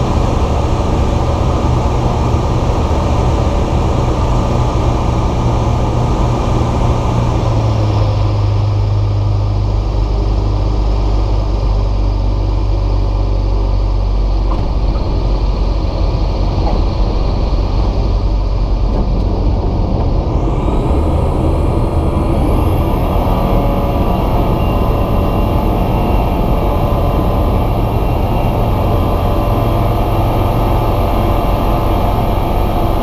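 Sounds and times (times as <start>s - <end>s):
aircraft engine drone: 0.0s - 33.0s.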